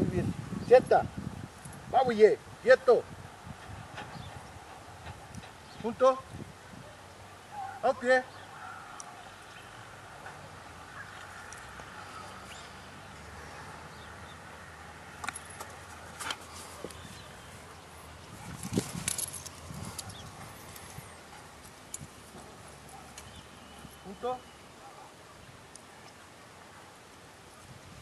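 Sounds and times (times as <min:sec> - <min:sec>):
outdoor background: 0:00.0 - 0:28.0
dog collar and leash clinking: 0:15.2 - 0:16.7, 0:18.5 - 0:24.1.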